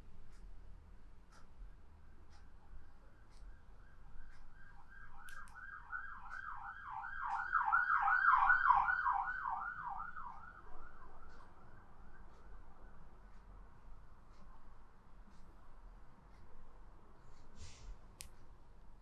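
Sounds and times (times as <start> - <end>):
siren wailing in fast sweeps: 3.6 - 12.3.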